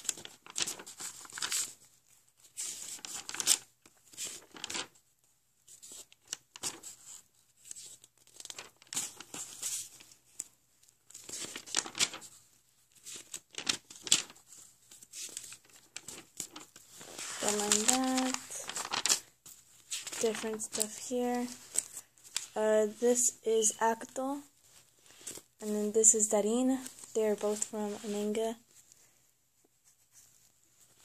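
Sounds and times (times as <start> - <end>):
paper pages rustling: 0.0 - 29.0, 29.6 - 31.0.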